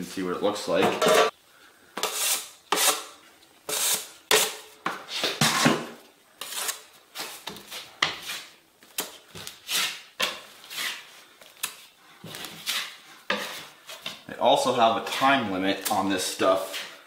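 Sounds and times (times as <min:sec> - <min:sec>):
metal knife scraping joint compound: 0:02.0 - 0:14.2.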